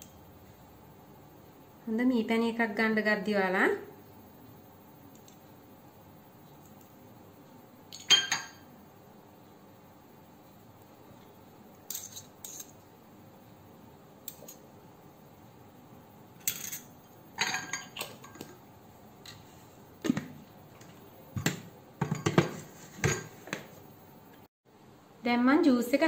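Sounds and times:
spoons clinking against glass bowl: 7.9 - 8.6, 16.4 - 18.5.

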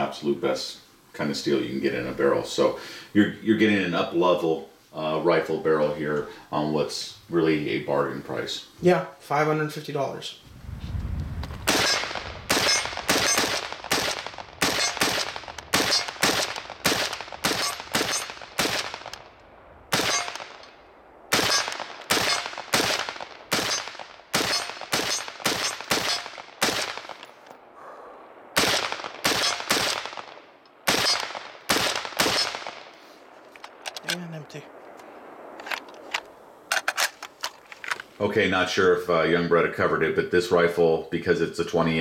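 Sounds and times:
rifle shots with echo: 11.6 - 27.4, 28.4 - 33.0.

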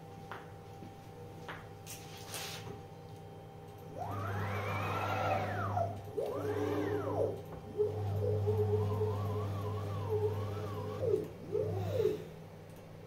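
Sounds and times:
low hum: 3.6 - 12.4
stepper motor whine: 3.8 - 12.4.

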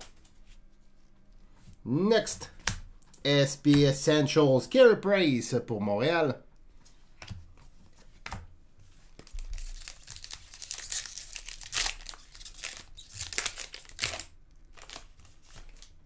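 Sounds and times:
foil wrapper crinkling: 9.2 - 16.0.

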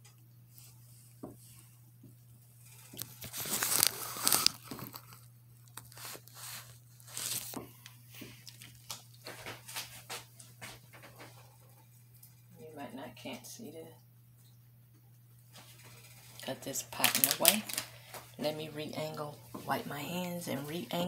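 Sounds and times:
aluminium foil crinkling: 2.6 - 11.1, 15.5 - 21.0.

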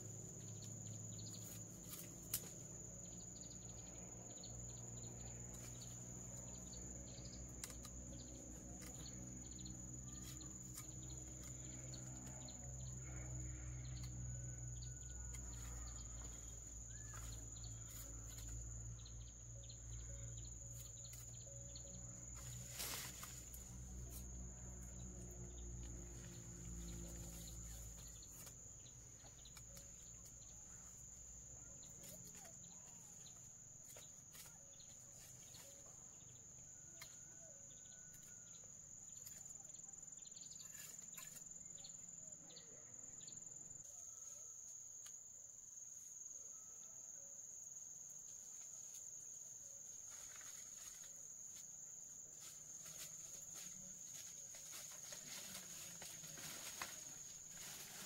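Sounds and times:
low hum: 0.0 - 33.6.

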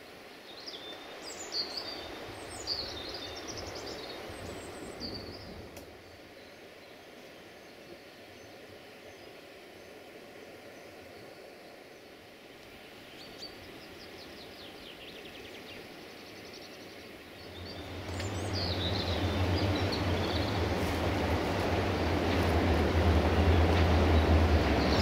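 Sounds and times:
birds chirping: 13.0 - 25.0
diesel train engine hum: 17.2 - 25.0.

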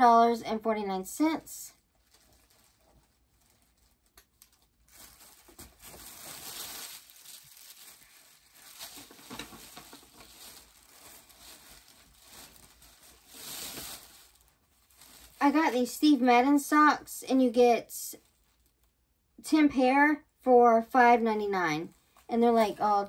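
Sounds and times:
shopping bag crinkling: 1.8 - 16.1.

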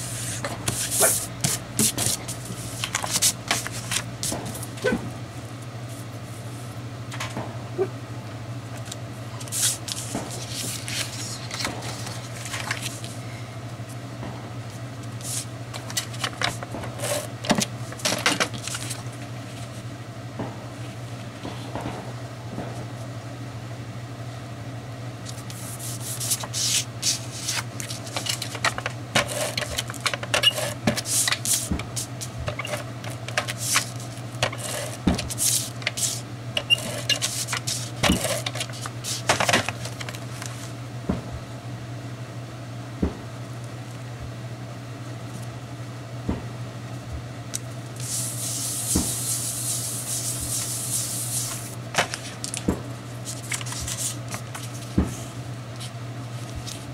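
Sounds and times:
paper sliding hiss: 0.0 - 4.4, 9.4 - 13.2, 15.2 - 16.3, 25.3 - 28.6, 30.5 - 32.8, 33.4 - 36.2, 36.8 - 40.7, 48.0 - 52.4, 53.2 - 56.9
tape runner clicks and scrapes: 0.0 - 5.0, 15.2 - 19.6, 25.2 - 40.7, 47.5 - 56.9
steady low hum: 0.0 - 56.9.

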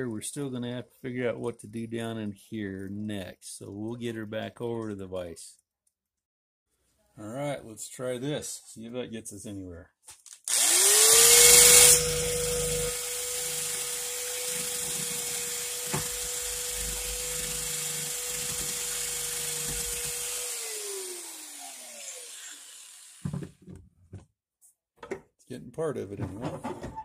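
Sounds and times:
power tool grinding steel: 10.5 - 23.5.

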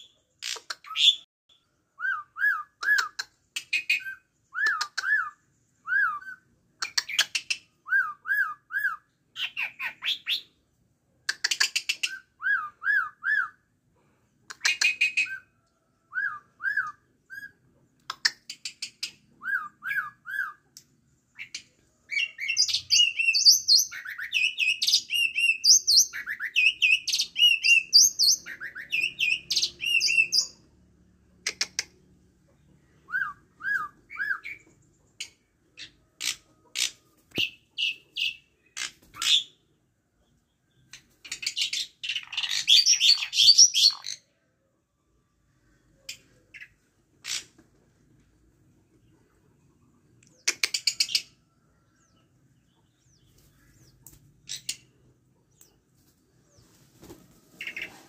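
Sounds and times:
starling calling and singing: 2.1 - 10.5, 21.4 - 30.6, 40.8 - 44.3.

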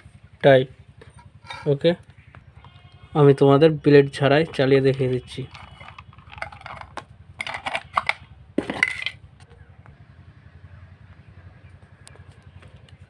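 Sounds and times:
metallic clicks and clatter: 4.5 - 9.5.

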